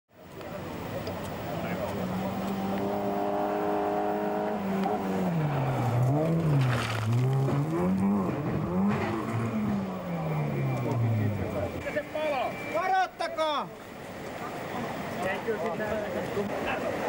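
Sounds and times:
rally car engine revving: 1.6s - 11.8s
car sliding on gravel: 4.6s - 10.0s.

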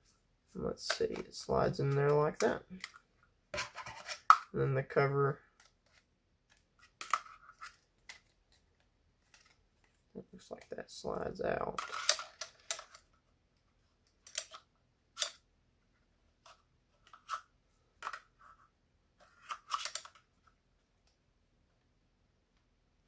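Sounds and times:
plastic parts clicking and scraping: 0.8s - 4.5s, 5.4s - 10.7s, 11.6s - 13.2s, 14.0s - 15.4s, 16.4s - 18.6s, 19.2s - 21.2s.

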